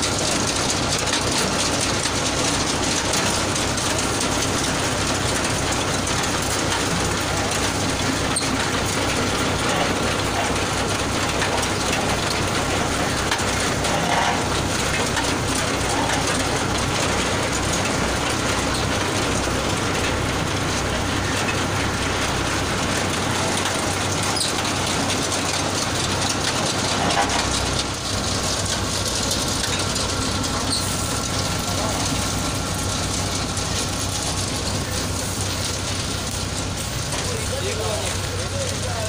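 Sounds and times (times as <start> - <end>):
machine rollers and chain clattering: 0.0 - 39.0
oranges rolling down chutes: 0.0 - 39.0.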